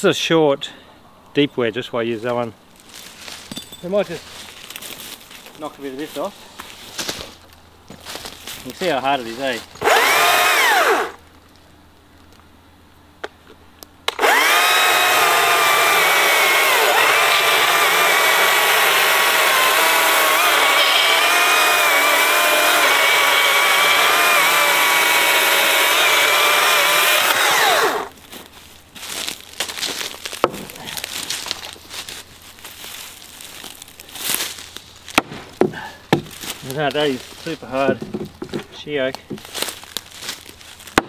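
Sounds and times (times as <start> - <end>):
electric chainsaw cutting wood: 9.8 - 11.2, 14.1 - 28.1.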